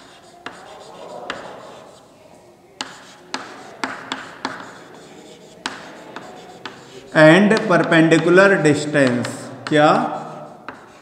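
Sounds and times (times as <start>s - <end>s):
chalk tapping on blackboard: 0.0s - 2.0s, 2.8s - 11.0s
chalk scratching: 0.0s - 11.0s.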